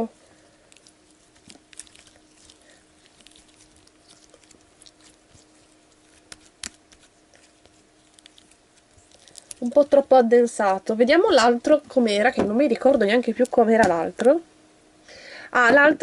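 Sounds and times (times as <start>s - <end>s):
slime squelching: 0.0s - 12.2s
slime popping: 0.7s - 10.0s.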